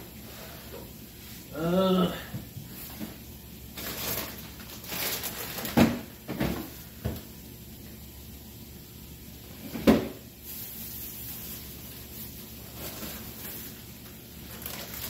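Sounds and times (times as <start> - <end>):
packages rustling: 3.7 - 6.8, 10.5 - 15.0.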